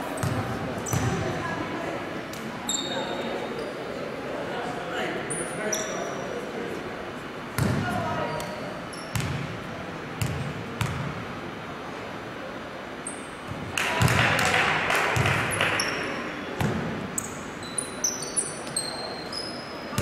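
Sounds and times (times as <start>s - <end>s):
crowd noise: 0.0s - 20.0s
basketball bouncing on court: 0.2s - 1.2s, 7.6s - 7.9s, 9.1s - 9.6s, 10.2s - 11.2s, 13.5s - 16.0s, 16.6s - 17.0s
shoe squeaks: 2.7s - 3.8s, 17.2s - 20.0s.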